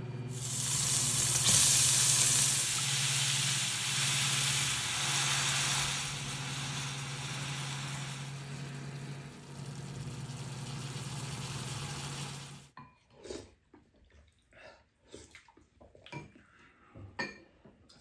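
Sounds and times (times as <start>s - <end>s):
low hum: 0.0s - 12.7s
stir-fry sizzling in a frying pan: 0.3s - 12.7s
soft eating sounds: 12.9s - 18.0s.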